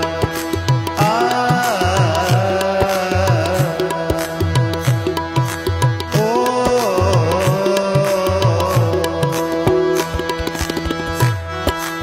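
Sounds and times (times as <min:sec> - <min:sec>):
harmonium chords: 0:00.0 - 0:12.0
tabla playing quick rhythm: 0:00.0 - 0:12.0.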